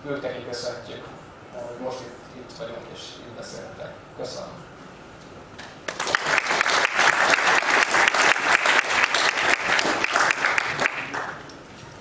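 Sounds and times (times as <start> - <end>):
audience applauding: 5.9 - 11.5.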